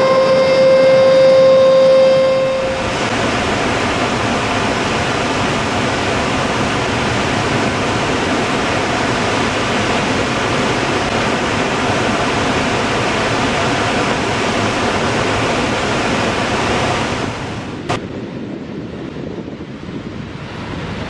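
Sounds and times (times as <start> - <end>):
siren: 0.0 - 2.8
water rushing through spillway: 0.0 - 18.0.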